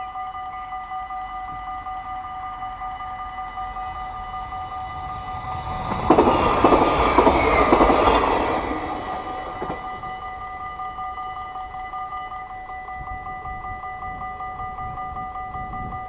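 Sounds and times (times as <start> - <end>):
crossing warning bells ringing: 0.0 - 16.0
train wheel and rail noise: 1.0 - 12.8.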